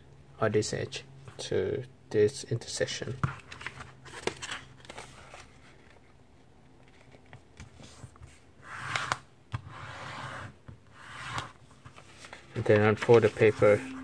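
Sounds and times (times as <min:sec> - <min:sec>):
paper sliding swishes: 0:11.0 - 0:14.0
paper rustling: 0:11.7 - 0:14.0.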